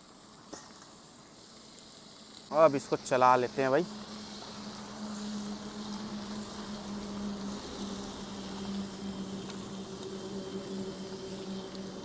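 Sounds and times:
chicken frying in oil: 0.0s - 12.0s
low hum: 3.0s - 12.0s.

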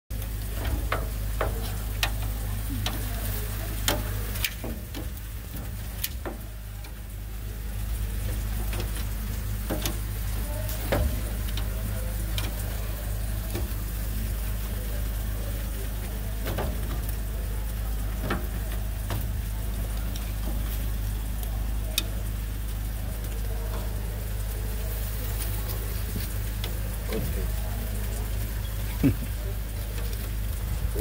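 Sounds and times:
meat sizzling on a smoker: 0.1s - 31.0s
sharp pops and crackles: 0.1s - 31.0s
steady low hum: 0.1s - 31.0s.

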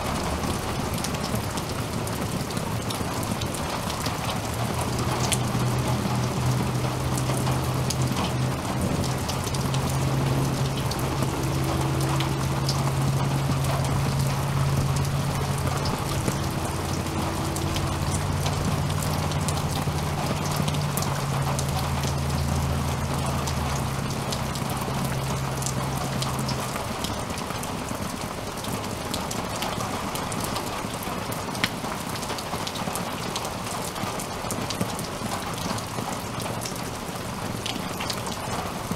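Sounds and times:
low steady rumble: 0.0s - 29.1s
heavy rain falling: 0.0s - 38.9s.

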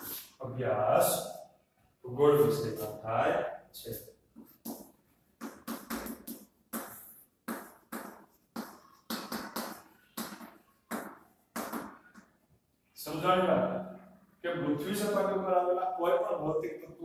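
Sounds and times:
chalk strokes on blackboard: 0.0s - 0.4s, 3.8s - 12.5s.

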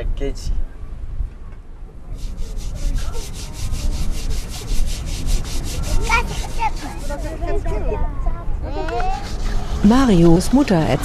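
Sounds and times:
metal pot being scrubbed: 2.2s - 7.6s, 9.2s - 10.5s.

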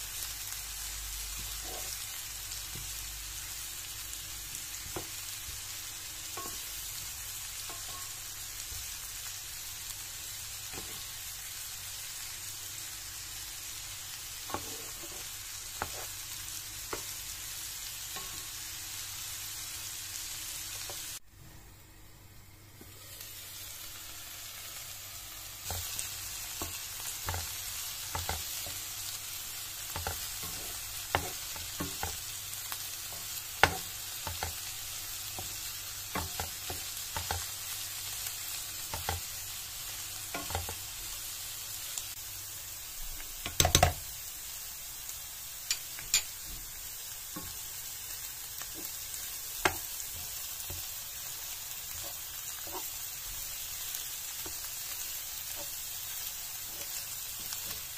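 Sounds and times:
leeks sizzling in oil: 0.0s - 21.2s, 22.4s - 57.9s
wooden spoon scraping pan: 14.5s - 16.2s
spoon knocking against pan: 43.4s - 44.0s.

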